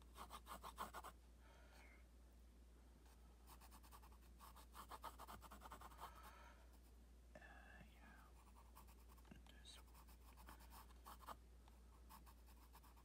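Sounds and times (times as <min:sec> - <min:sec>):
pencil scratching on paper: 0:00.0 - 0:01.1, 0:03.5 - 0:06.3, 0:08.4 - 0:09.2, 0:09.8 - 0:13.0.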